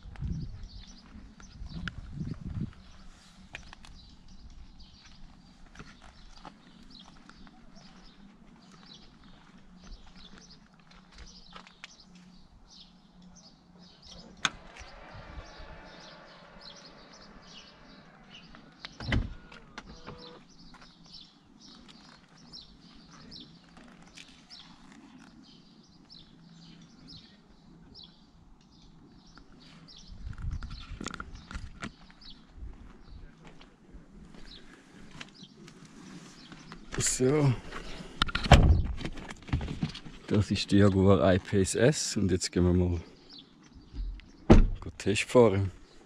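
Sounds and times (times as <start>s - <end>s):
birds chirping: 0.0s - 46.0s
electric motor whir: 14.4s - 20.4s
tailgate thud latching: 44.5s - 44.8s.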